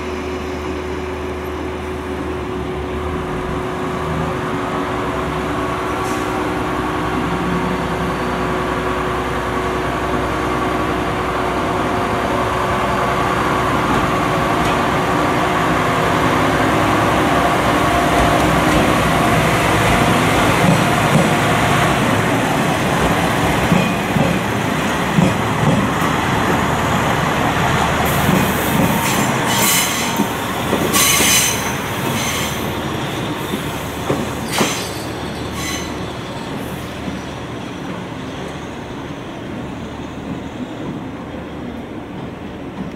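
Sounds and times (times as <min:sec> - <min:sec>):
diesel train engine and wheels rumbling: 0:00.0 - 0:42.9
high-pitched wheel squeals: 0:34.4 - 0:38.6.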